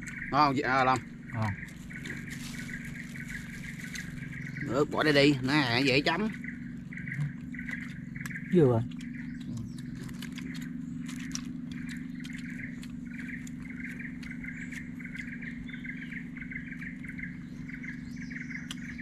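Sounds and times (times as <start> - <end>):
birds chirping: 0.0 - 19.0
steady low hum: 0.0 - 19.0.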